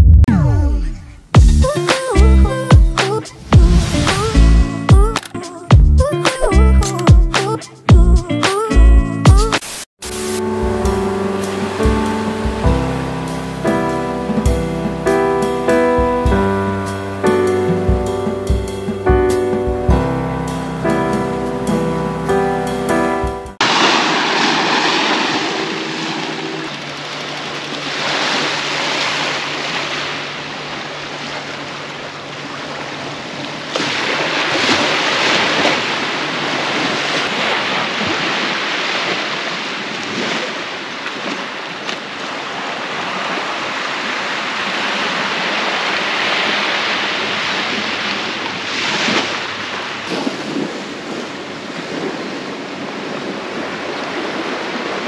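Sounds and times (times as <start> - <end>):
wind: 0.0 - 7.9, 23.6 - 55.0
small waves washing onto sand: 23.6 - 55.0.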